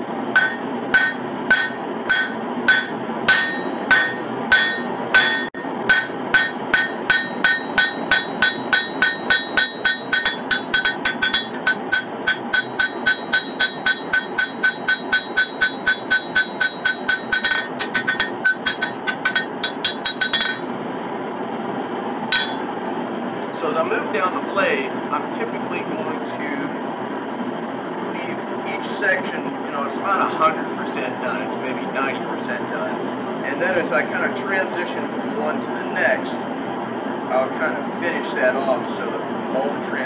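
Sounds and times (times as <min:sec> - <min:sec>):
steady shop noise: 0:00.0 - 0:40.0
hammer ringing on anvil: 0:00.4 - 0:20.7, 0:22.3 - 0:22.8.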